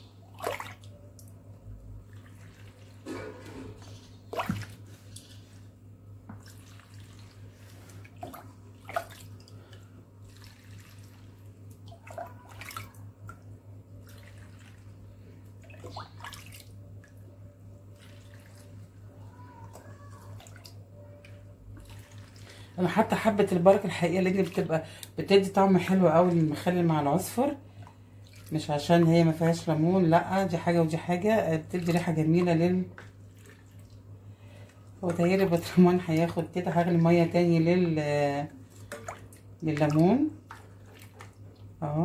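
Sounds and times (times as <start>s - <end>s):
low steady hum: 0.0s - 42.0s
liquid splashing and pouring: 6.3s - 17.2s, 17.9s - 19.0s, 19.7s - 24.6s, 33.0s - 36.8s, 38.6s - 41.6s.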